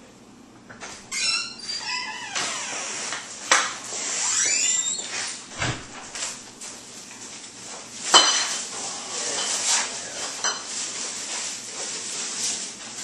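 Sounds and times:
plastic bags rustling: 5.1s - 13.0s.

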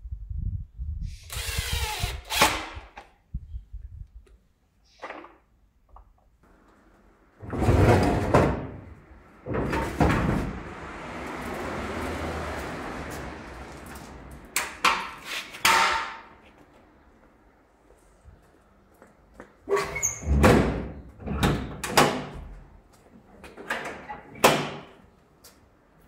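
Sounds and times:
steel frame rolling rumble: 7.0s - 14.5s
steel frame scraping on concrete: 7.4s - 8.6s, 15.0s - 16.2s.

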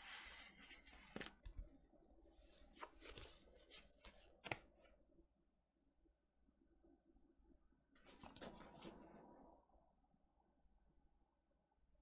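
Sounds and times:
record sleeve rustling and sliding: 0.0s - 4.9s, 8.0s - 9.3s.

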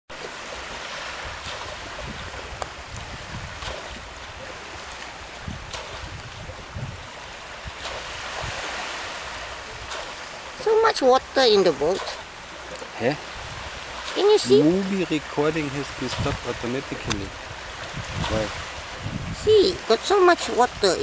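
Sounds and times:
small waves washing on shore: 0.1s - 21.0s
wind buffeting microphone: 1.1s - 10.0s, 13.2s - 21.0s.

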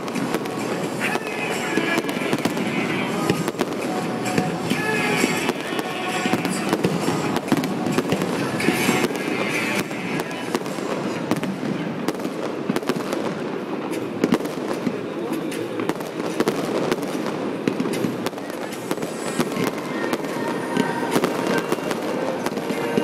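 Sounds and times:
fireworks bangs and crackles: 0.0s - 23.0s.

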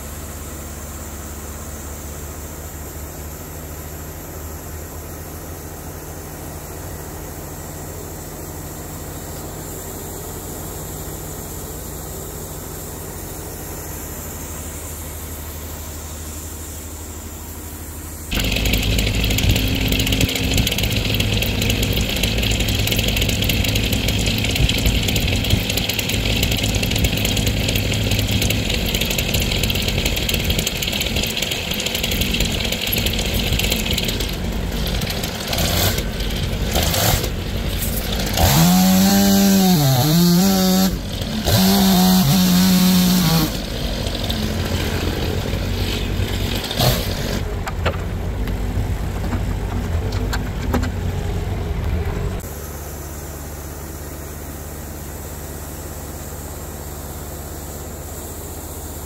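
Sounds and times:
sawmill sawing a log: 18.3s - 47.6s.

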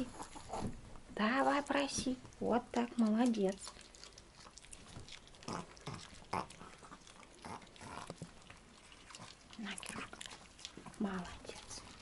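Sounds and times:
small dogs vocalizing: 3.6s - 11.0s.

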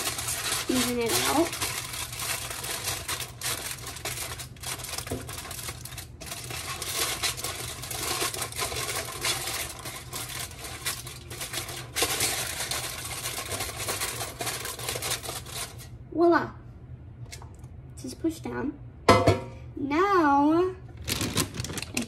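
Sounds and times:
aluminium foil crinkling: 0.0s - 15.9s, 21.0s - 22.0s.

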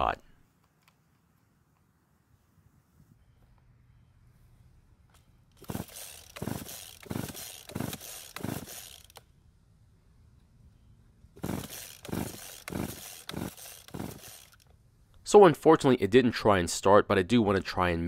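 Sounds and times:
chainsaw recoil starter pulls: 5.5s - 9.3s, 11.4s - 14.8s.

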